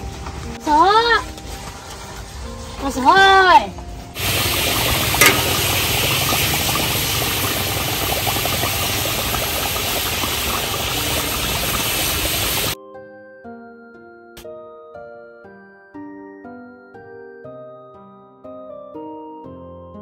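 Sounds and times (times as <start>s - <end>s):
food sizzling in hot oil: 4.2s - 12.8s.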